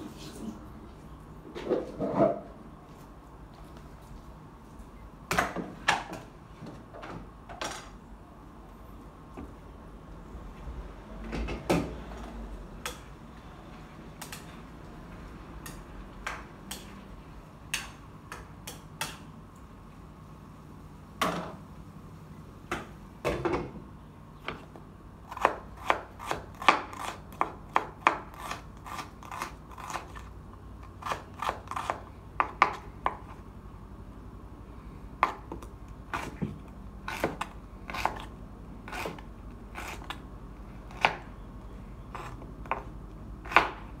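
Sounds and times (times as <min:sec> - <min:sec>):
knife chopping on wooden board: 0:42.2 - 0:43.8.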